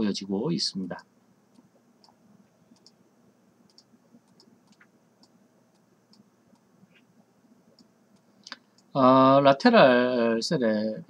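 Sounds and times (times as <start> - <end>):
faint computer mouse clicks: 1.5 - 2.2, 2.8 - 3.0, 3.7 - 7.1.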